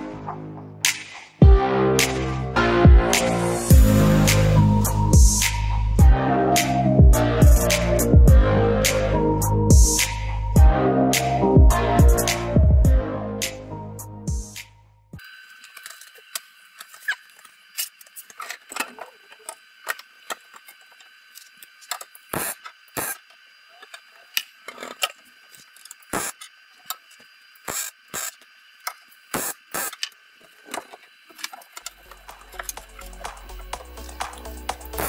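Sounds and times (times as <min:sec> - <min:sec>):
welding crackles and pops: 0:15.6 - 0:24.6, 0:25.3 - 0:35.0
welding hiss: 0:22.3 - 0:23.3, 0:26.1 - 0:26.4, 0:27.5 - 0:28.5, 0:29.2 - 0:30.0.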